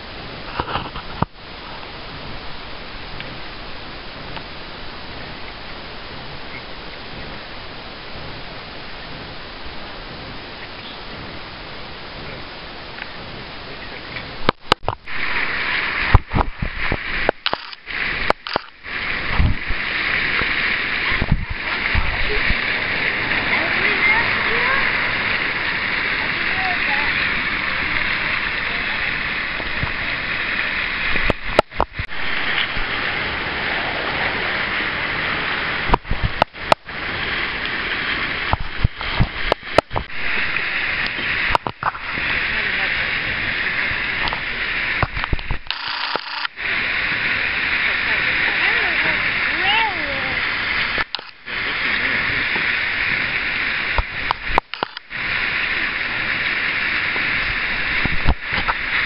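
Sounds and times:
mud pot bubbling and hissing: 0:00.0 - 0:59.0
sharp clicks: 0:17.2 - 0:18.8, 0:45.0 - 0:46.6, 0:51.0 - 0:51.4, 0:54.0 - 0:55.1.

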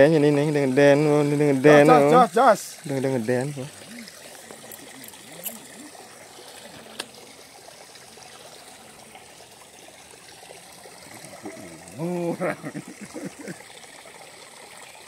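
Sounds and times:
water trickling and splashing: 0:00.0 - 0:15.0.

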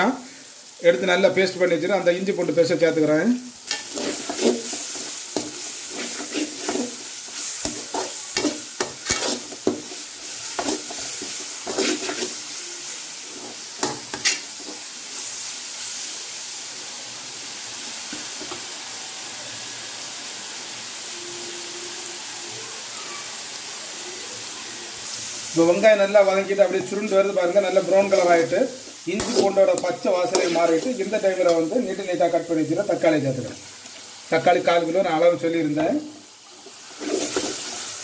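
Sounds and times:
onions sizzling in oil: 0:00.0 - 0:38.0
metal ladle scraping pan: 0:03.6 - 0:12.5, 0:28.1 - 0:31.7, 0:36.9 - 0:37.8.

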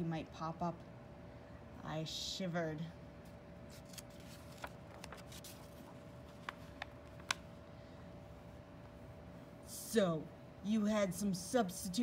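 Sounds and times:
faint steady hum: 0:00.0 - 0:12.0
book pages rustling: 0:03.3 - 0:07.6.

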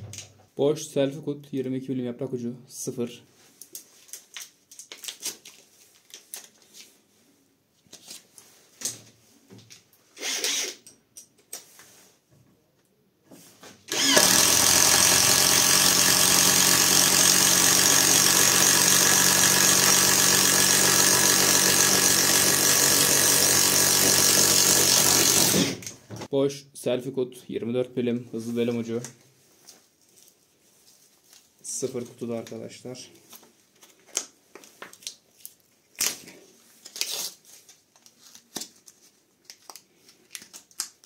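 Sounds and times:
power drill boring into wood: 0:10.2 - 0:10.8, 0:13.9 - 0:26.0.

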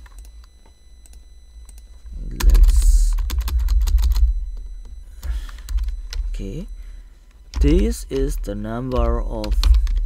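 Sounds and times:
keyboard typing: 0:01.0 - 0:06.3, 0:07.5 - 0:10.0.

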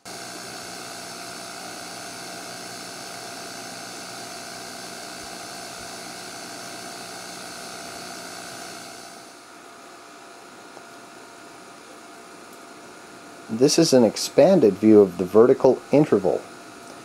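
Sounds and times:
tape machine motor whirring: 0:00.0 - 0:09.5.

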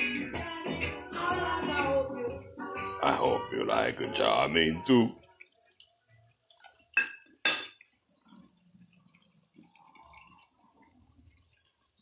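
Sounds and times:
kitchenware clinking: 0:06.6 - 0:07.9.

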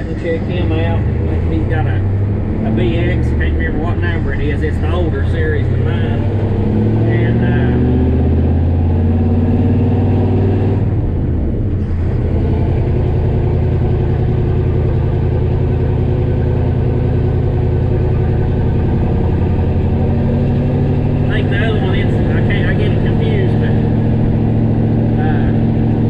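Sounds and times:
truck engine from inside cab: 0:00.0 - 0:26.0.

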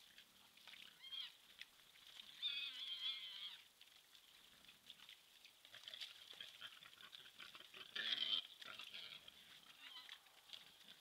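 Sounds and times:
high-pitched animal calls: 0:00.8 - 0:01.4, 0:02.3 - 0:03.7, 0:06.4 - 0:11.0.

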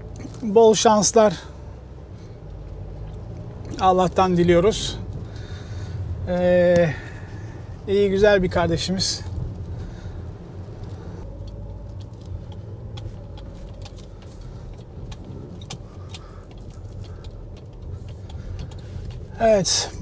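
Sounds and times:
engine and road rumble: 0:00.0 - 0:20.0
faint ticks: 0:10.8 - 0:19.4.

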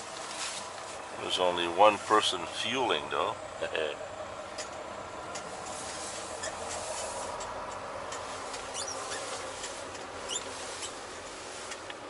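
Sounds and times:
truck cab noise hiss: 0:00.0 - 0:12.0
high squeaks and ticks: 0:04.5 - 0:05.5, 0:06.3 - 0:11.1.

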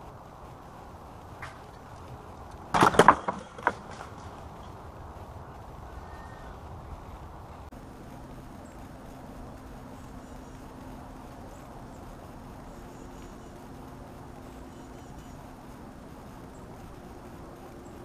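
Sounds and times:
loud wooden knocks: 0:02.7 - 0:04.3.

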